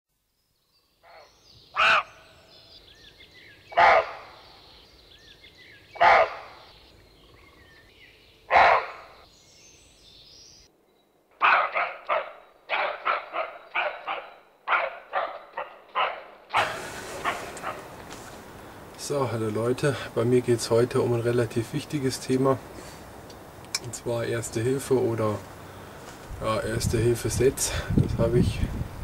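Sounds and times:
faint birdsong: 0.2 - 29.0
dog barking: 3.7 - 4.3, 6.0 - 6.6, 8.5 - 9.1, 11.4 - 17.9.

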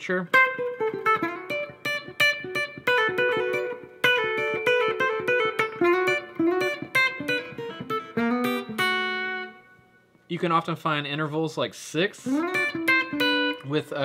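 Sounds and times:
electric guitar picking fast notes: 0.3 - 9.8, 12.3 - 13.8.

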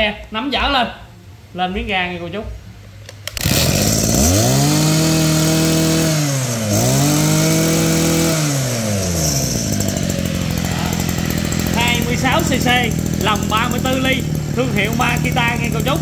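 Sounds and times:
brush-cutter pull-starting: 3.2 - 16.0
brush-cutter engine revving and idling: 3.3 - 16.0.

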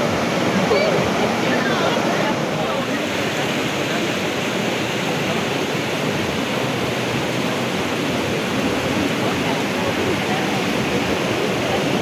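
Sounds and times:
stream rushing over boulders: 0.0 - 12.0.

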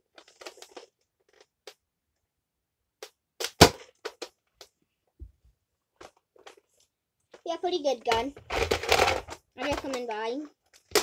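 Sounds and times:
toy blaster pop: 3.4 - 4.2.

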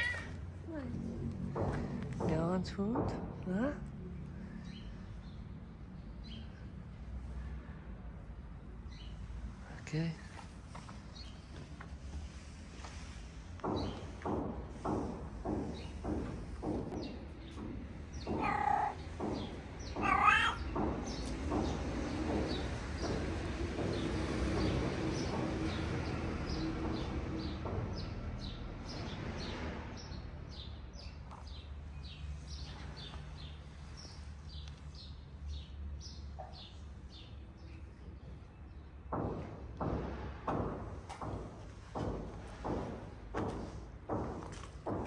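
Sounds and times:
cat meowing: 0.0 - 0.4, 18.3 - 19.0, 20.0 - 20.7.

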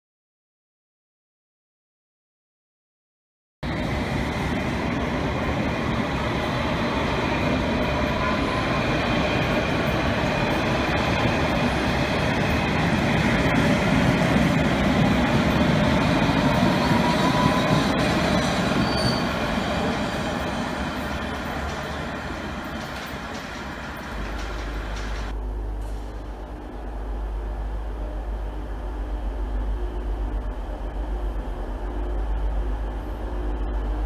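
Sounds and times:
train wheels rumbling on rail: 3.6 - 34.0
faint wheel squeal: 18.8 - 19.4.

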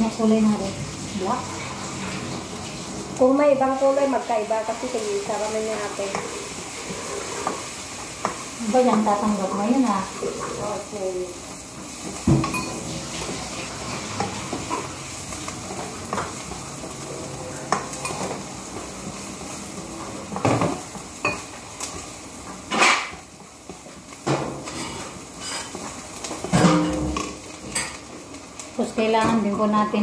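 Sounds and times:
onion sizzling in hot oil: 0.0 - 30.0
spatula stirring and scraping: 4.1 - 11.0, 23.4 - 27.9.

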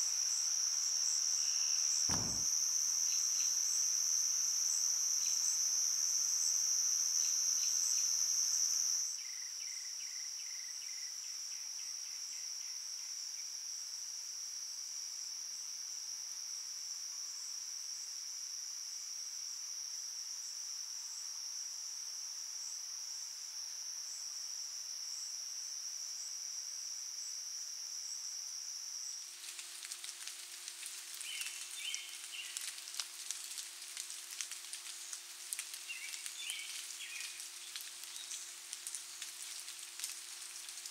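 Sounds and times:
crackling hiss: 2.1 - 2.5, 29.2 - 40.9.

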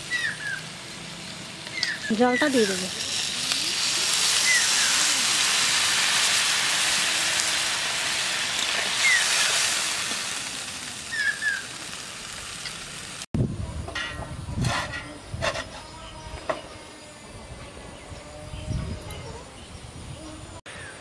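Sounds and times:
water sizzling in hot oil: 0.0 - 13.3.

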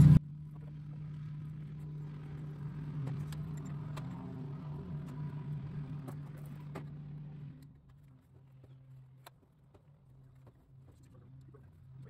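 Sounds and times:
low motor hum: 0.0 - 12.0
faint clicks and scrapes: 6.0 - 12.0.

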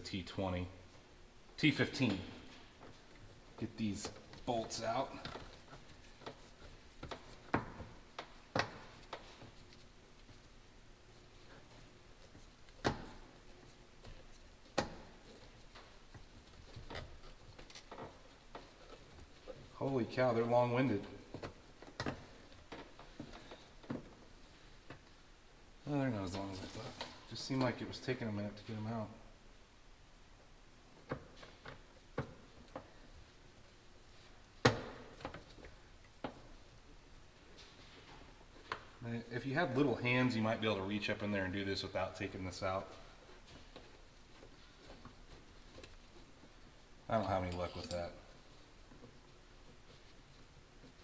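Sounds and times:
light clicks and knocks of parts: 1.7 - 10.6, 11.2 - 25.3, 39.7 - 51.0.

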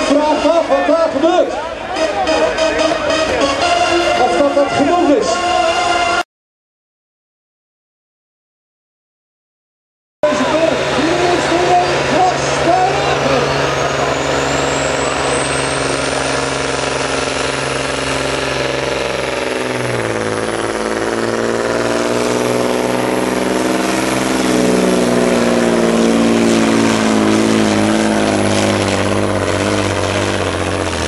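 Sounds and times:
diesel truck engine under load: 10.2 - 31.0.

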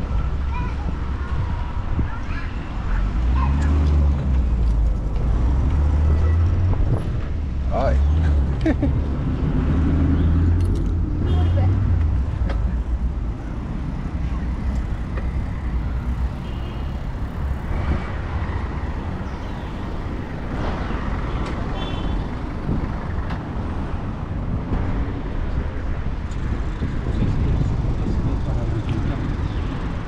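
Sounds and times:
wind rumbling over microphone: 0.0 - 9.8, 22.2 - 30.0
road traffic passing: 0.0 - 30.0.

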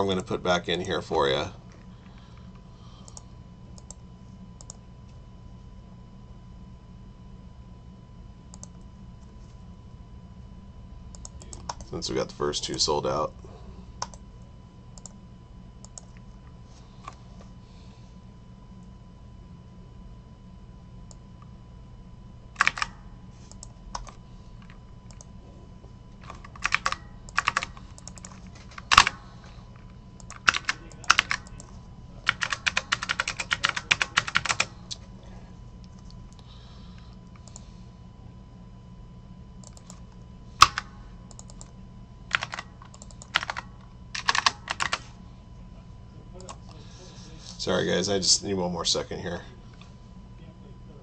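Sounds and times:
steady low hum: 0.0 - 51.0
typing on keyboard: 22.6 - 22.9, 23.5 - 24.2, 26.2 - 29.2, 30.2 - 31.7, 32.3 - 34.7, 42.3 - 45.0.

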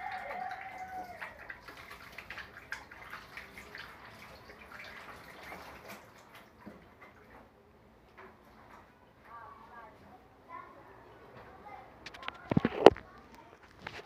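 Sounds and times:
tap water splashing into steel sink: 0.0 - 7.5.

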